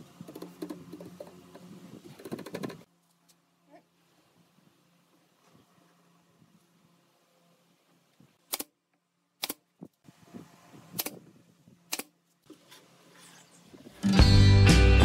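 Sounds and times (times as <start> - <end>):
sharp clicks: 9.4 - 9.6
background music: 14.0 - 15.0.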